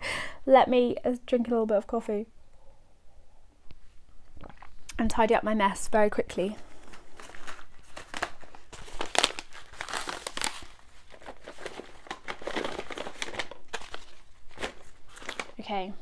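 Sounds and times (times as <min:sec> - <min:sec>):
packets crinkling and rustling: 0:06.4 - 0:15.9.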